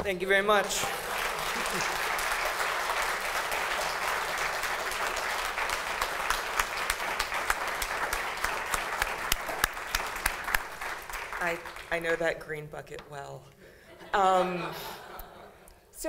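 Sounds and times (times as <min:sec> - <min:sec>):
audience applauding: 0:00.6 - 0:12.3.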